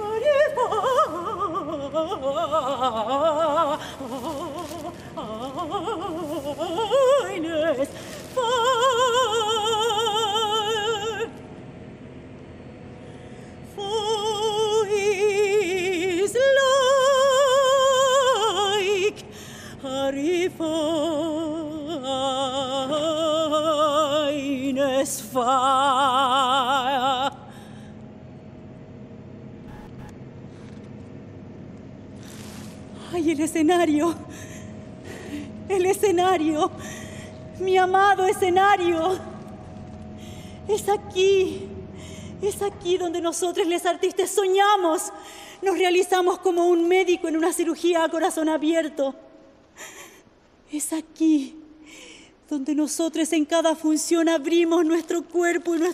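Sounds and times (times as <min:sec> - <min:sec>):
woman singing operatically: 0:00.0 - 0:11.3, 0:13.7 - 0:27.4, 0:35.7 - 0:36.8, 0:37.6 - 0:39.4, 0:42.4 - 0:49.2.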